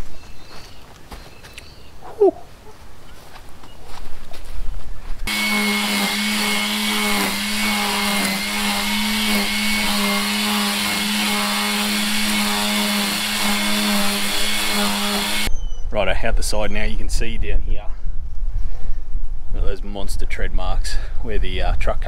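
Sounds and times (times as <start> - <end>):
electric line trimmer whining: 5.3 - 15.5.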